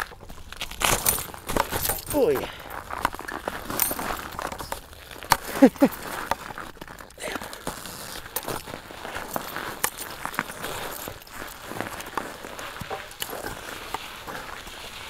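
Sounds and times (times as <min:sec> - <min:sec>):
snow crunching: 0:00.0 - 0:15.0
person grunting: 0:07.2 - 0:07.5.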